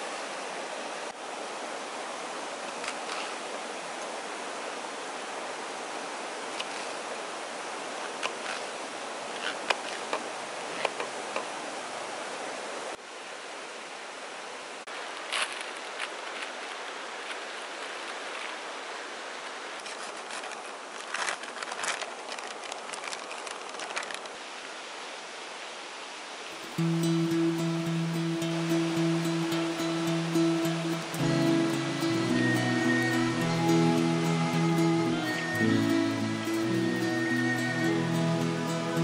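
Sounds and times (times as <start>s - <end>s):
steady background hiss: 0.0s - 39.0s
plastic packaging crinkling and tearing: 19.9s - 24.4s.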